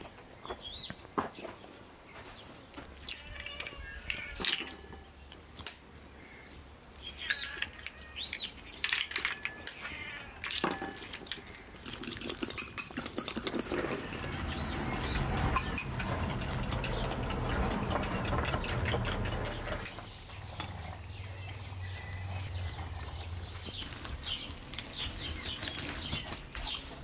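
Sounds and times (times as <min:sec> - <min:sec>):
eggs cracking on bowls: 0:06.9 - 0:20.0
spoon clinking in ceramic bowl: 0:11.8 - 0:19.9.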